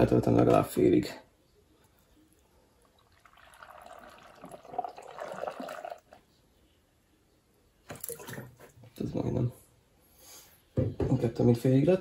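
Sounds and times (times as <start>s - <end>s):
water pouring and splashing: 3.0s - 6.1s.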